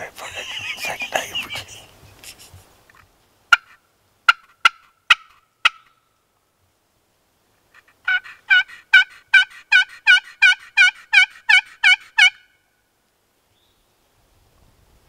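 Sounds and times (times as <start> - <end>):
turkey yelps on friction call: 3.5 - 6.0, 7.8 - 12.6.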